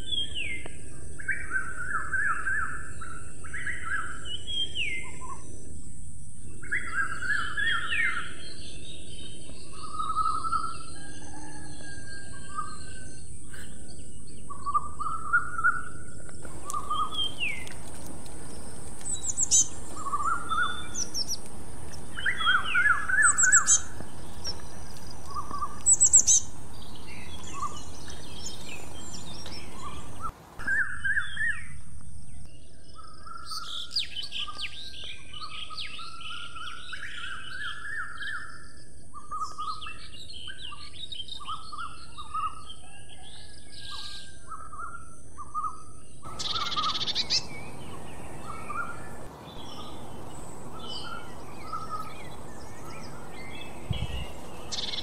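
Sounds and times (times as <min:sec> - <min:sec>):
birds twittering: 0:00.0 - 0:55.0
songbirds chirping and singing: 0:00.0 - 0:55.0
steady high hiss: 0:16.4 - 0:31.2, 0:46.3 - 0:55.0.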